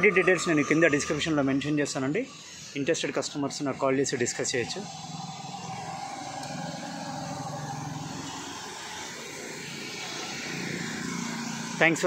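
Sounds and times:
motorcycles and cars passing: 4.5 - 12.0.

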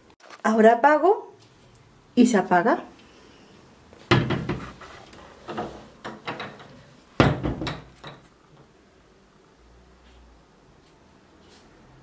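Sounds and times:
cabinet doors knocking shut: 4.1 - 4.8, 5.5 - 8.3.

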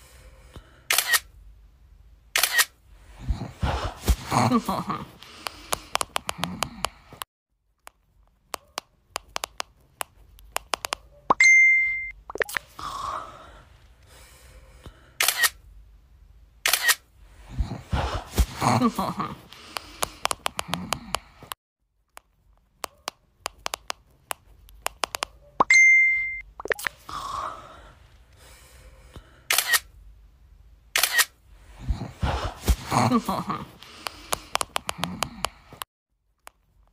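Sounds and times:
camera shutter clicks: 0.9 - 1.3, 2.4 - 2.8, 15.2 - 15.6, 16.6 - 17.1, 29.5 - 29.9, 31.0 - 31.4
short electronic beep: 11.4 - 12.2, 25.7 - 26.5.

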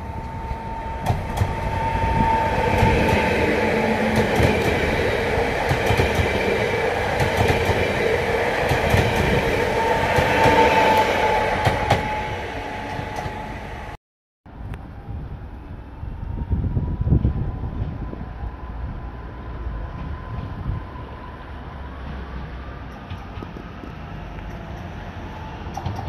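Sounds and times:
steady high tone: 0.0 - 14.0
passenger train passing: 0.0 - 26.0.

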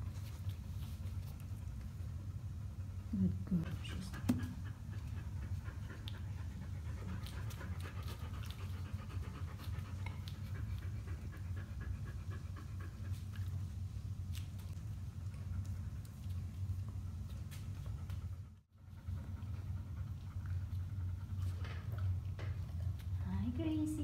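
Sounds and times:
steady low hum: 0.0 - 24.0
dogs panting: 0.2 - 13.9, 15.0 - 23.8.

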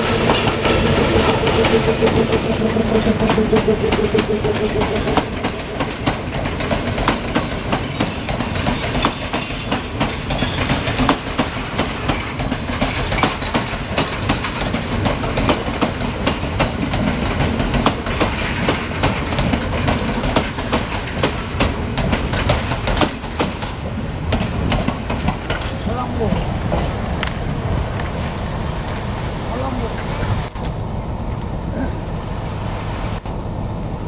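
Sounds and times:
train wheels rumbling on rail: 0.0 - 34.0
wheels clicking over rail joints: 5.8 - 28.2.

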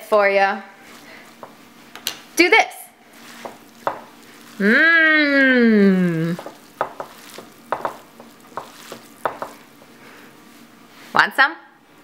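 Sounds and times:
wet squishing of food strands: 3.1 - 9.8
voice holding long wordless note: 4.6 - 6.4.

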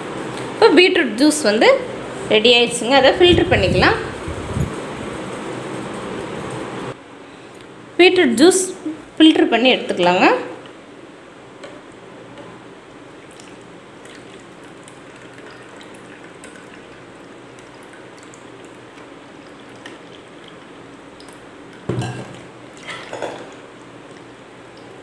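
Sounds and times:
juice trickling and dripping: 12.8 - 25.0
pulp poured into strainer: 13.2 - 24.2
jar set down with a thump: 21.9 - 22.4.

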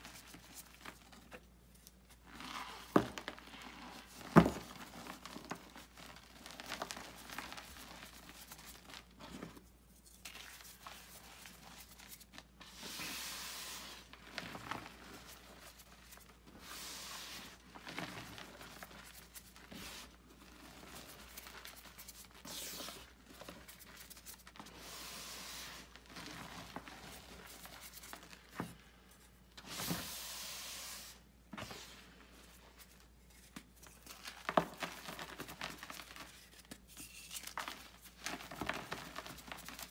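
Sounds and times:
chalk crunching in hands: 10.0 - 12.3.

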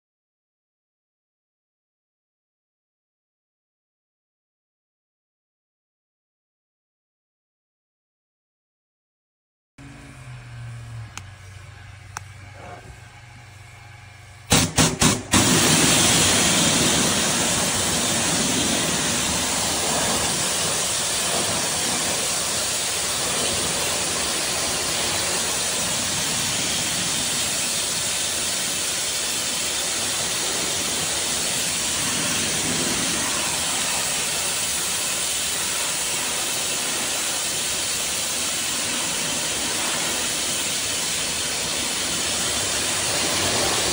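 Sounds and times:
pressure washer spraying wood: 14.5 - 43.9.

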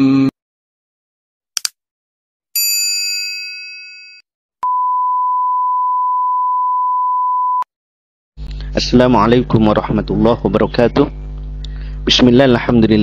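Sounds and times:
quick clicks: 1.6 - 1.8.

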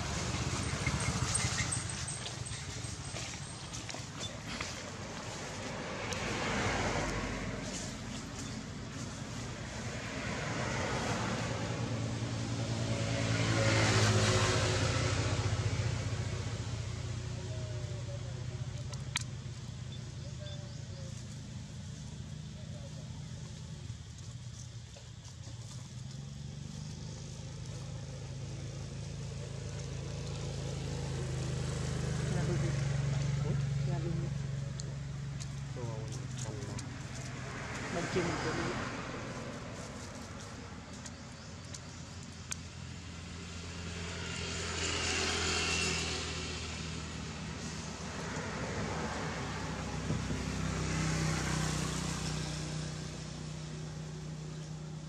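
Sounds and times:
vehicle engine passing: 0.0 - 55.0
motor engine running: 14.9 - 38.7.

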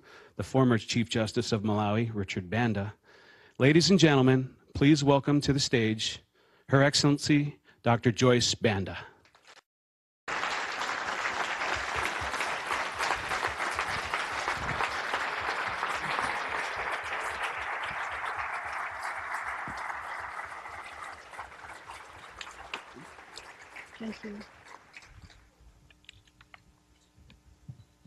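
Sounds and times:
audience applauding: 10.3 - 25.4.

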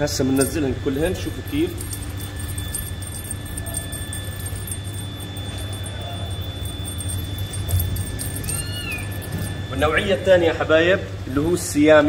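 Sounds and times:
steady low hum: 0.0 - 10.4
light scattered ticks: 0.4 - 10.0.

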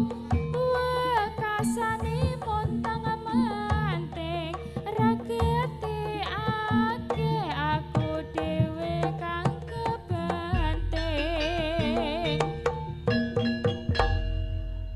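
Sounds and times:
wavering melody with vibrato: 0.0 - 14.9
barrel drums beating: 5.0 - 14.9.

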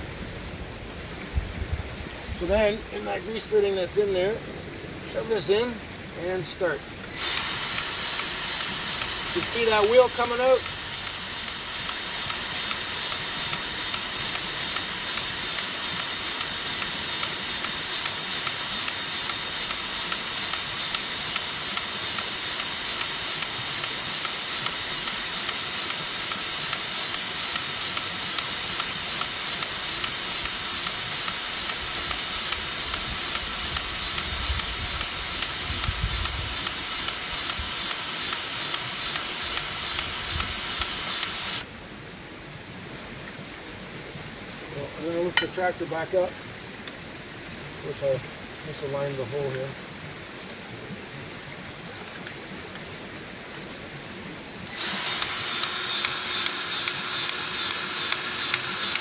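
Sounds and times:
grease gun motor whine: 5.1 - 41.7, 54.6 - 59.0
rapid pumping tick: 7.0 - 41.6, 54.7 - 59.0.

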